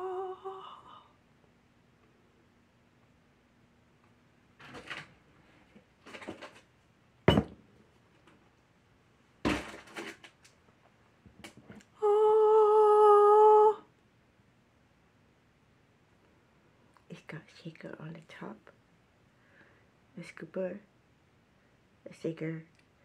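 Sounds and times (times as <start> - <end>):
woman humming: 0.0 - 1.2, 11.9 - 13.9.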